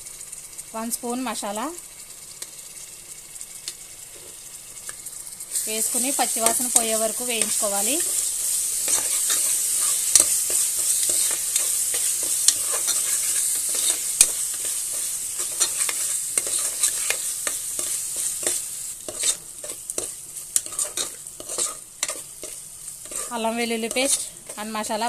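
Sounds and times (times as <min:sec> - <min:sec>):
food sizzling in hot oil: 0:00.0 - 0:25.0
spoon scraping pot: 0:05.6 - 0:24.8.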